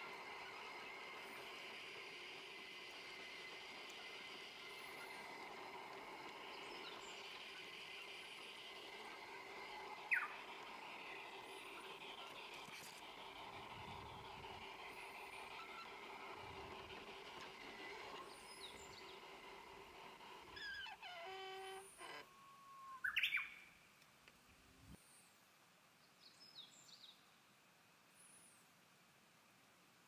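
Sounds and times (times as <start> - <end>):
steady hum: 0.0 - 23.0
birds chirping and singing: 6.3 - 12.7, 13.4 - 19.4, 22.9 - 23.6.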